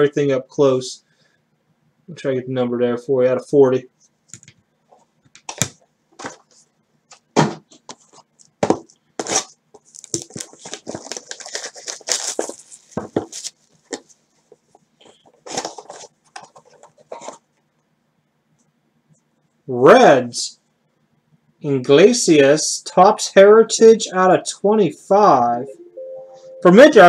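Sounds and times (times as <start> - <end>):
tearing and rustling: 9.2 - 14.1.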